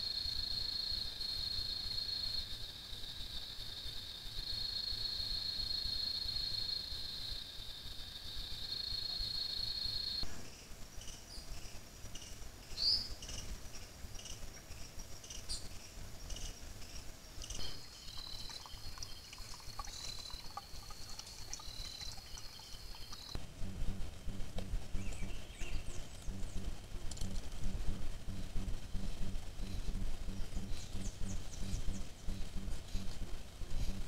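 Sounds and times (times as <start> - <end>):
short insect chirps: 0.0 - 23.4
crickets trilling: 0.0 - 34.0
low background hiss: 0.0 - 34.0.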